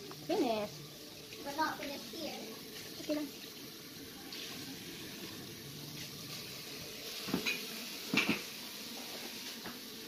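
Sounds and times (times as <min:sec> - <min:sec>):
dishes clinking in metal sink: 0:07.2 - 0:09.2.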